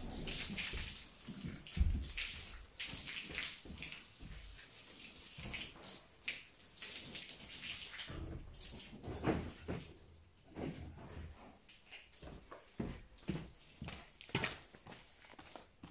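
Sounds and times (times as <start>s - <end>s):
hose water splashing on concrete: 0.0s - 15.9s
low knocks and scuffs: 0.8s - 2.2s.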